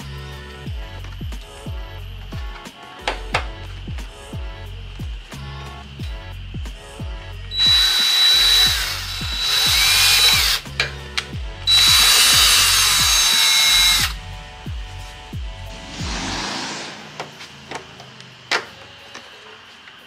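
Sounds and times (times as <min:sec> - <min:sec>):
cordless drill boring into plastic: 0:07.5 - 0:10.6, 0:11.6 - 0:14.2.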